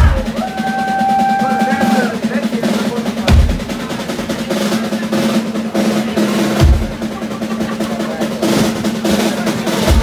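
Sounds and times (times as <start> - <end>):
bass line: 0.0 - 4.4
kick drum and cymbal hits: 0.0 - 7.1, 8.6 - 10.0
rapid snare drumming: 0.0 - 10.0.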